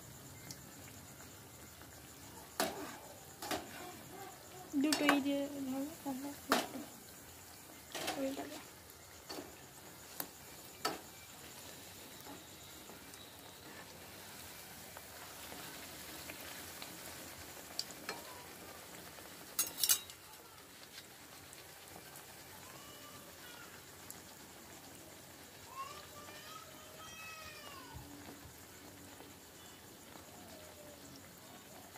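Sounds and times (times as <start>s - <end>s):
dough deep-frying in oil: 0.0s - 31.9s
metal spoon clinking against pan: 19.6s - 20.3s.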